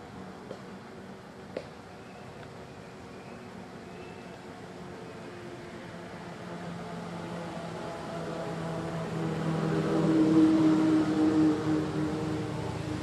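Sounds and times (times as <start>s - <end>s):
motor engine passing by: 4.9s - 13.0s.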